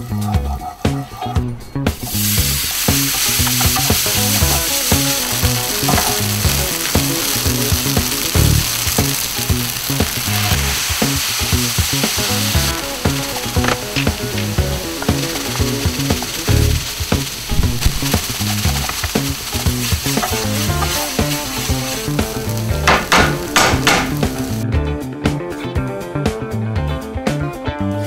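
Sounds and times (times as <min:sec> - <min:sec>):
background music with bass line: 0:00.0 - 0:28.0
wooden spoon scraping pan: 0:00.2 - 0:24.4
tofu sizzling in hot oil: 0:01.7 - 0:24.6.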